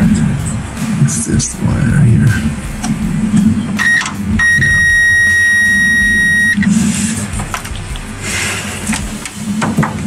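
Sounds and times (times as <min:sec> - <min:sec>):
continuity tester beeping: 0:03.8 - 0:06.7
clicks and rustling of wires: 0:07.4 - 0:08.0.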